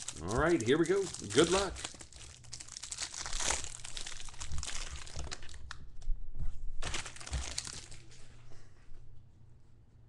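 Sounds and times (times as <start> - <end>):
cellophane wrapper crinkling: 0.0 - 6.1, 6.8 - 8.2.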